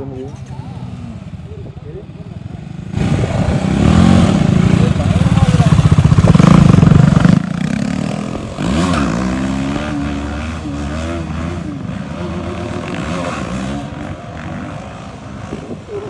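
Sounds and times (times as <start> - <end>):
motorcycle engines revving: 0.0 - 16.0.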